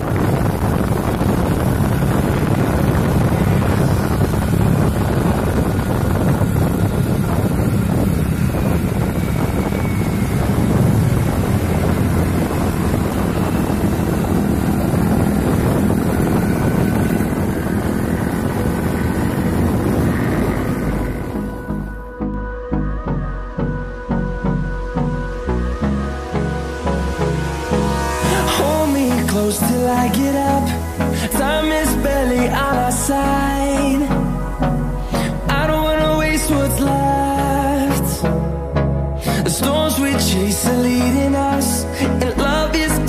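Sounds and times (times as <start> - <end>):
motorbike engines running: 0.0 - 22.1, 25.8 - 43.0
wind buffeting microphone: 0.0 - 22.4.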